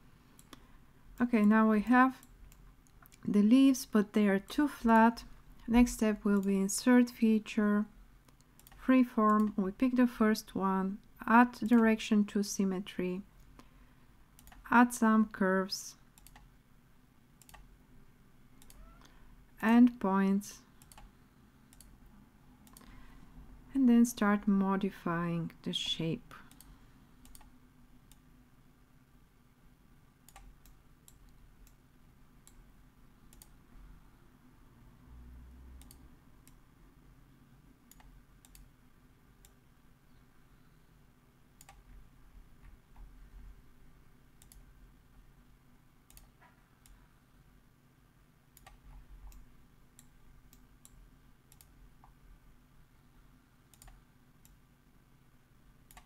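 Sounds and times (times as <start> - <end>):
low steady hum: 0.0 - 56.0
computer mouse clicks: 0.4 - 0.7, 2.2 - 3.3, 4.9 - 6.6, 8.2 - 9.6, 14.4 - 14.7, 16.2 - 16.5, 17.4 - 17.7, 18.6 - 19.0, 20.8 - 21.1, 21.7 - 22.0, 22.6 - 23.0, 26.4 - 28.3, 30.3 - 31.8, 33.3 - 33.6, 35.8 - 36.6, 37.9 - 38.7, 41.6 - 41.9, 44.4 - 44.7, 46.1 - 47.0, 48.6 - 52.2, 53.7 - 54.6.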